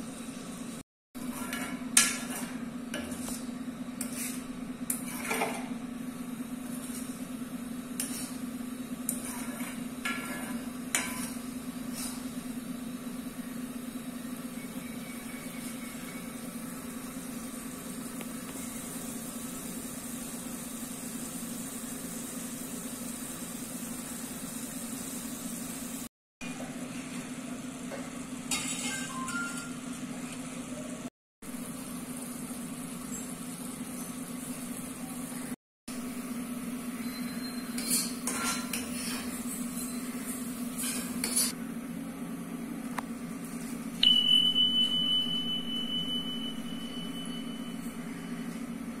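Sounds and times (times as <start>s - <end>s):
ladle scraping steel bowl: 1.2s - 5.6s
high metallic ring: 44.0s - 48.4s.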